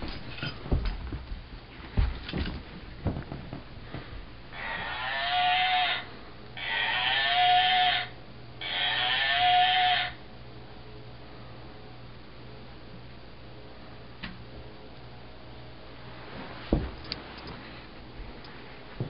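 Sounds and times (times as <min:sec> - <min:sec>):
dog paws on floor: 0:00.0 - 0:04.3, 0:16.1 - 0:19.0
dog howling whines: 0:04.6 - 0:10.2.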